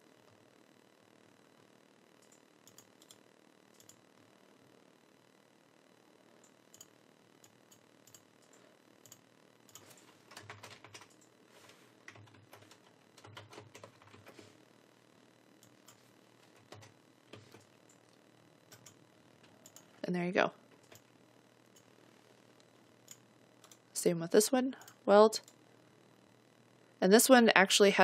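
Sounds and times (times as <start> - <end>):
keyboard typing: 2.2 - 4.0, 6.4 - 14.5, 15.6 - 18.0, 18.7 - 20.0, 20.7 - 21.1, 23.0 - 23.8.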